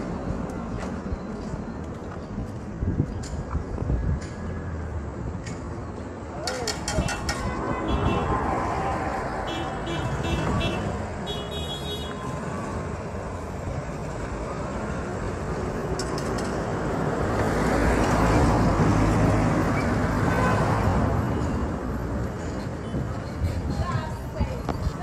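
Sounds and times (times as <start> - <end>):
street traffic rumble: 0.0 - 25.0
car passing: 6.6 - 21.6.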